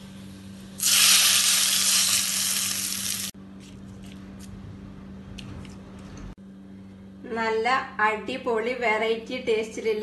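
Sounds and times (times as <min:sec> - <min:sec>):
hot oil sizzling: 0:00.0 - 0:03.4.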